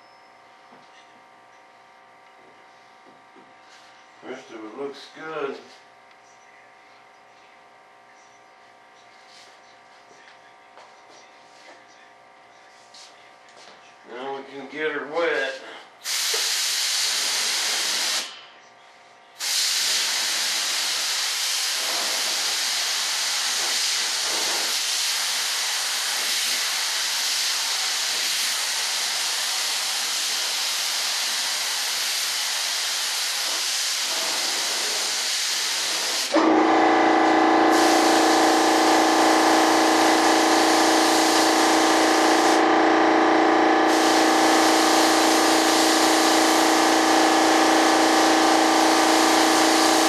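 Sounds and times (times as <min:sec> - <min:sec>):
spray gun hissing: 0:16.0 - 0:18.3, 0:19.4 - 0:36.9, 0:37.5 - 0:42.7, 0:43.8 - 0:50.0.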